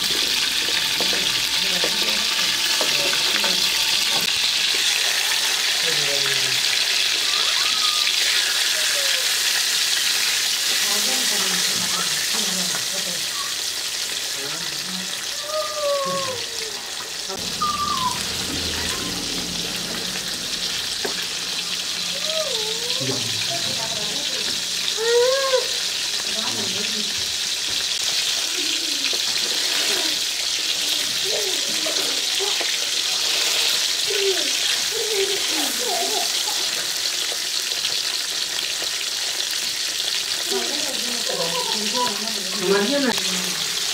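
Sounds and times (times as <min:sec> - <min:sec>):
wooden spatula in a pan: 0:00.0 - 0:05.8, 0:23.1 - 0:39.8
fish sizzling in hot oil: 0:00.0 - 0:43.9
rising-then-falling call: 0:16.9 - 0:23.0.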